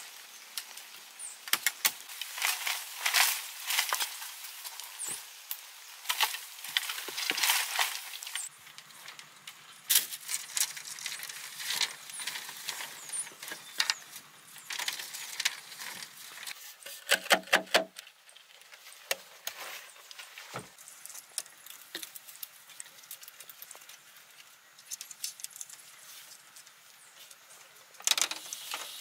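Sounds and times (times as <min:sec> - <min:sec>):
bamboo poles knocking and scraping: 0:06.0 - 0:29.0.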